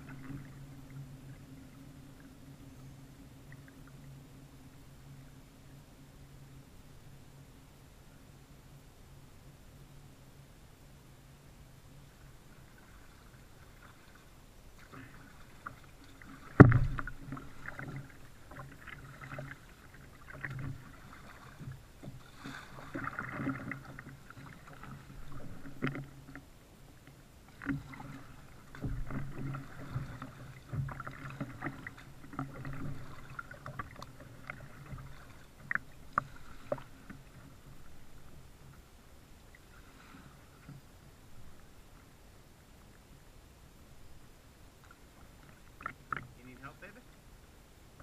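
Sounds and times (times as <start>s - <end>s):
paddle strokes splashing water: 0.0s - 2.6s, 12.0s - 42.2s, 44.0s - 47.1s
low thuds through hull: 16.1s - 19.5s.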